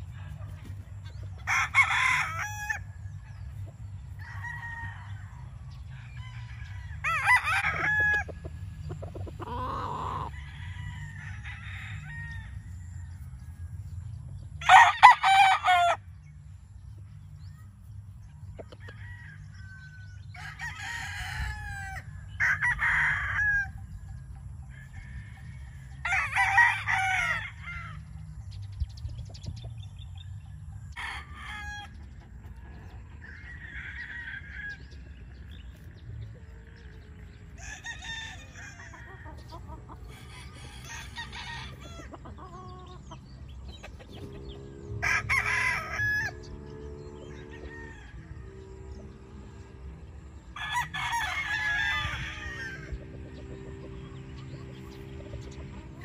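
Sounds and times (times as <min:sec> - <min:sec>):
roosters crowing: 0:00.0 - 0:56.0
steady low rumble: 0:02.8 - 0:14.7, 0:16.0 - 0:20.4, 0:51.4 - 0:56.0.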